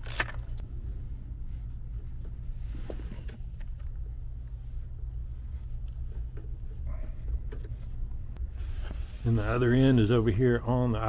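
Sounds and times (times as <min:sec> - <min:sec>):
ratchet clicking: 0:00.0 - 0:00.5
steady low hum: 0:00.0 - 0:11.0.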